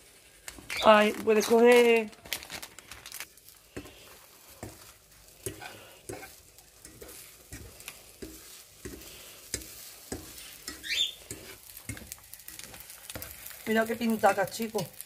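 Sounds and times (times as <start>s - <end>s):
eggs sizzling in a pan: 0.0s - 15.0s
metal fork scraping a frying pan: 4.6s - 13.6s.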